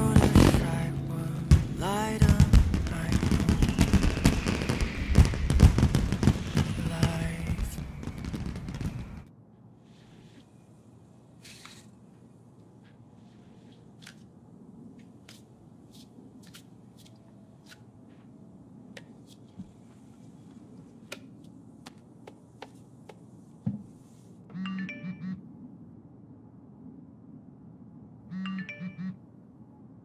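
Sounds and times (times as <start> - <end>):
phone alert buzzing: 24.5 - 25.4, 28.3 - 29.2.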